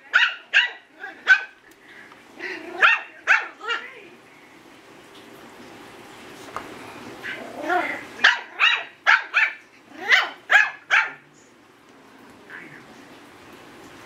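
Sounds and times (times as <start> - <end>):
puppy yapping barks: 0.1 - 1.6, 2.8 - 3.8, 8.2 - 11.2
puppy grumbling call: 7.2 - 8.2.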